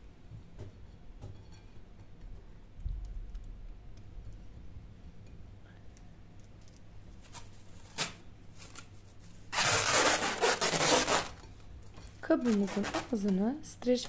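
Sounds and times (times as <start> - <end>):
cling film rustling: 7.2 - 11.4.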